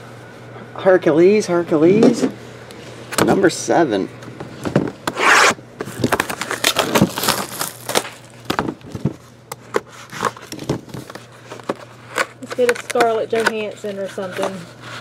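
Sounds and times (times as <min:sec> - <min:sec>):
cardboard box scraping on table: 0:05.1 - 0:05.6.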